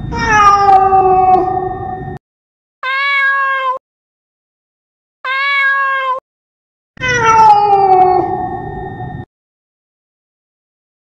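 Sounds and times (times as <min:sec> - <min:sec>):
cat meowing: 0:00.1 - 0:01.6, 0:02.8 - 0:03.8, 0:05.3 - 0:06.2, 0:07.0 - 0:08.5.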